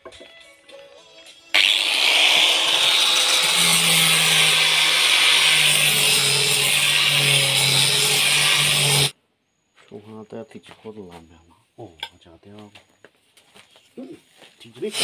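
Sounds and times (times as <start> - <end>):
angle grinder grinding metal: 1.5 - 9.2.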